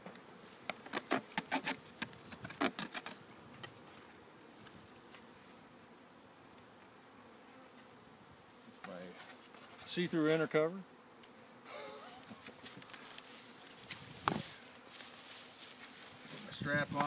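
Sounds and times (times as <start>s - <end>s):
clicks and knocks of hive parts: 0.0s - 5.3s, 12.2s - 14.4s
faint hum of honey bees: 0.0s - 17.0s.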